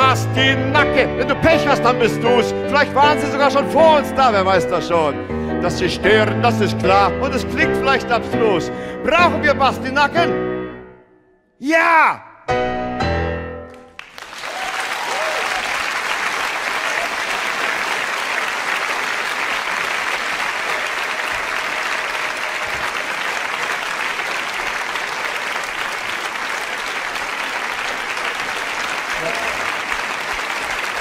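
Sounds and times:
audience applauding: 13.7 - 31.0.

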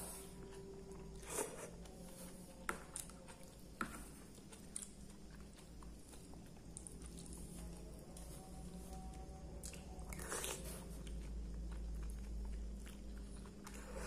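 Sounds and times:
chewing: 0.0 - 14.0.

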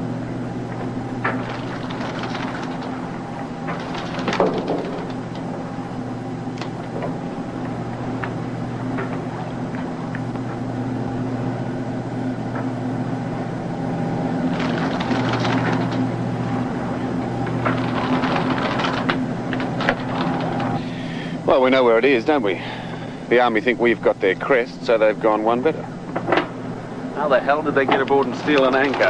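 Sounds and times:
boat machinery drone: 0.0 - 29.0
knocks and clanks on deck: 3.6 - 5.5.

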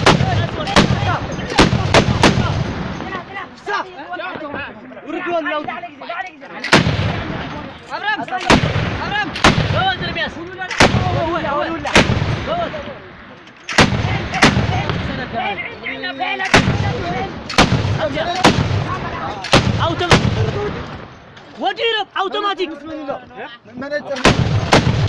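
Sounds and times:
machine gun single shots echoing: 0.0 - 3.1, 13.7 - 15.0, 16.4 - 20.6, 24.2 - 25.0.

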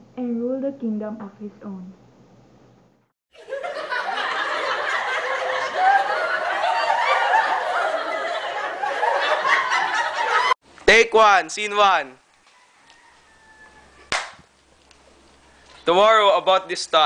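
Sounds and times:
group of people laughing: 3.4 - 10.6.

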